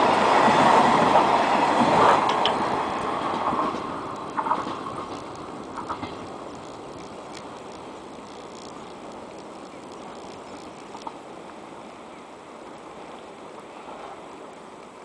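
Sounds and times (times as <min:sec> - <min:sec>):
freight train wagons rumbling: 0:00.0 - 0:11.9
faint clicks: 0:03.7 - 0:11.2.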